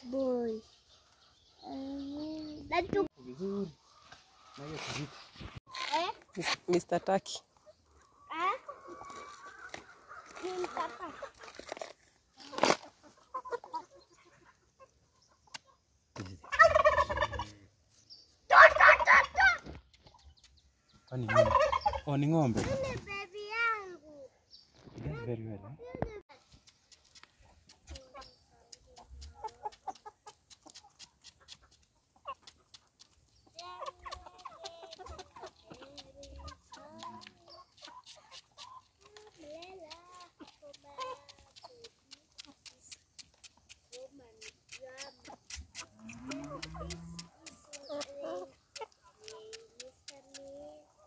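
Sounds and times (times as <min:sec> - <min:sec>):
poultry clucking: 0:03.6 - 0:17.8, 0:18.5 - 0:23.0, 0:26.5 - 0:51.0
turkey gobbling: 0:16.4 - 0:17.5, 0:18.5 - 0:19.6, 0:21.2 - 0:22.1
sharp clicks and taps: 0:39.0 - 0:50.6.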